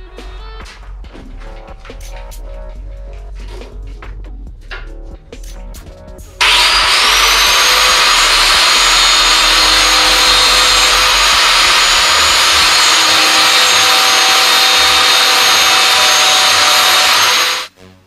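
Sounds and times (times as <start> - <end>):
power grinder grinding steel: 6.4 - 17.7.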